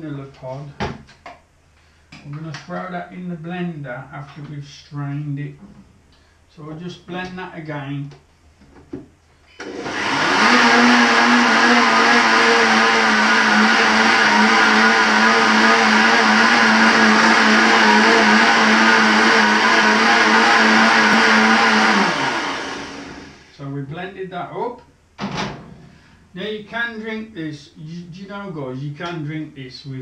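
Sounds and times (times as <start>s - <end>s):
blender whirring: 9.6s - 23.5s.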